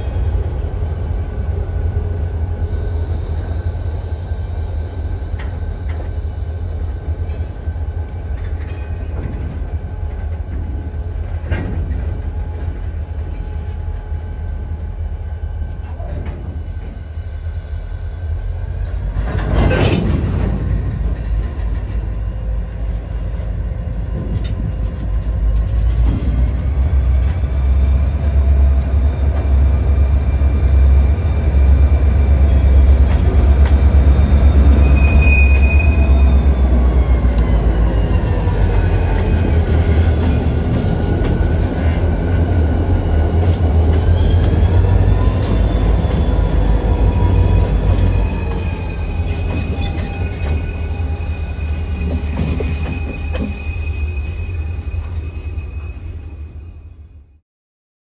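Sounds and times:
diesel locomotive rumbling: 0.0s - 57.4s.

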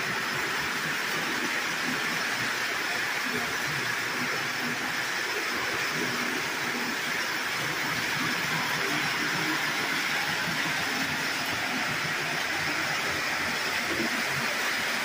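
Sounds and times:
toy trains whirring on rails: 0.0s - 15.0s.

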